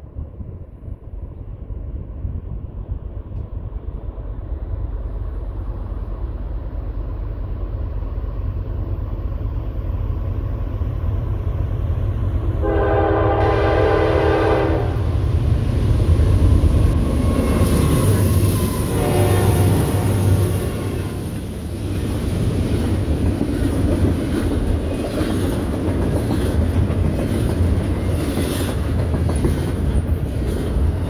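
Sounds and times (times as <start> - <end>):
locomotive low rumble: 0.0 - 25.1
locomotive air horn blast: 12.6 - 15.2, 18.8 - 21.2.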